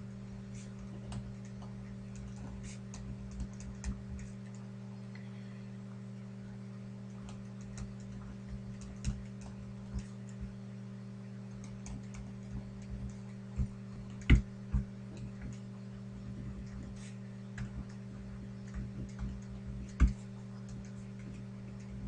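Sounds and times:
low electrical hum: 0.0s - 22.0s
pen nib ticking on paper: 11.5s - 15.6s.

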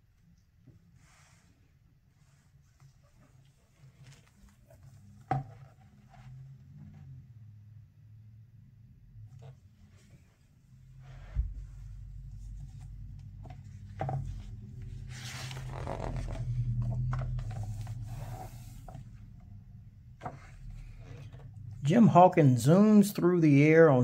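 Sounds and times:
paper page rustling: 14.4s - 18.7s.

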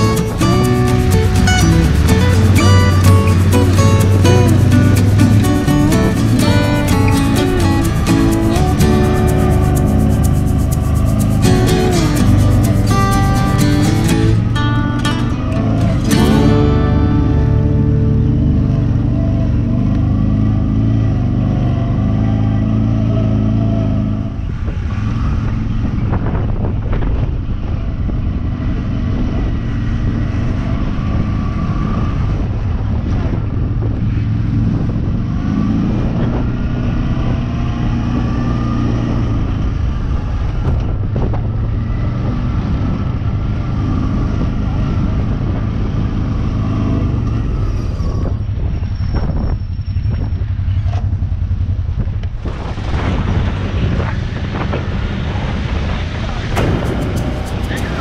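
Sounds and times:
atv engine running: 0.0s - 48.7s, 49.8s - 58.0s
tyres on gravel: 56.6s - 58.0s.

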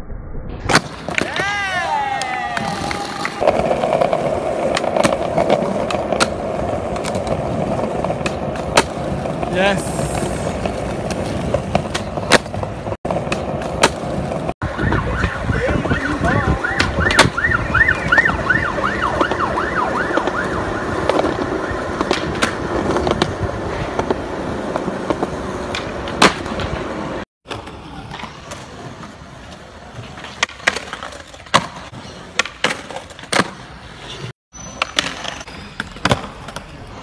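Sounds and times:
skateboard wheels rolling on concrete: 0.6s - 37.0s
skateboard clacks: 0.7s - 14.5s, 16.1s - 17.4s, 18.1s - 33.6s
siren wavering: 14.6s - 22.1s.

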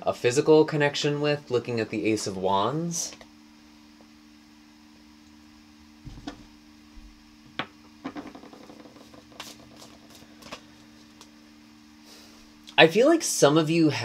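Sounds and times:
faint steady hum: 0.0s - 14.0s
cards shuffling: 8.2s - 11.3s.

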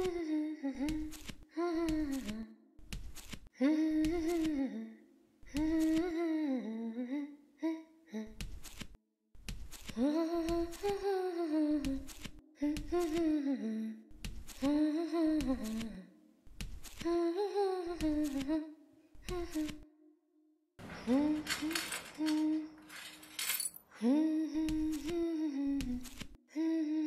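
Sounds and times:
person humming a slow tune: 0.0s - 2.6s, 3.6s - 8.3s, 24.0s - 27.0s.

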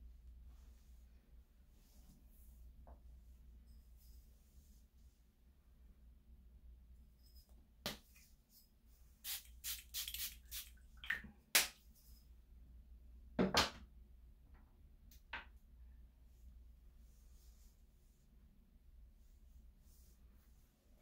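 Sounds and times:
pump spray bottle spritzing: 9.3s - 10.8s.

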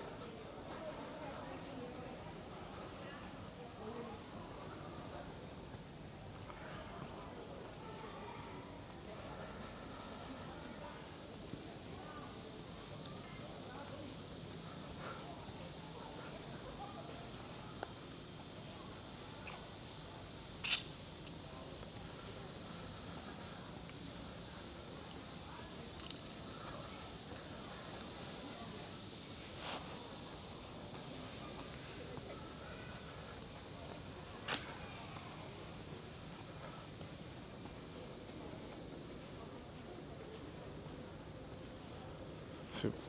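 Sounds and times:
high-pitched insect chorus: 0.0s - 43.0s
faint ticks: 20.6s - 20.9s.

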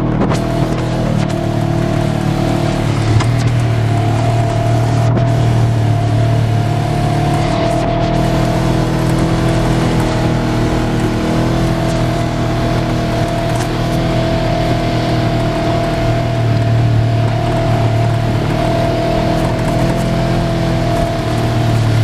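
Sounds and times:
off-road vehicle engine droning: 0.0s - 22.0s.

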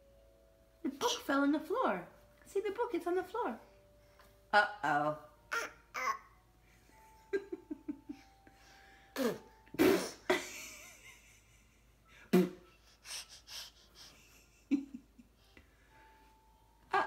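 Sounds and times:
baby babbling: 5.5s - 6.3s.

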